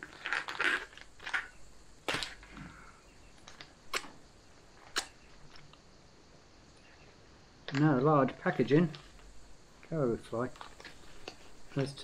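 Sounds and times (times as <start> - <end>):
food pouch crinkling and tearing: 0.0 - 1.5
sharp snaps: 4.8 - 5.9.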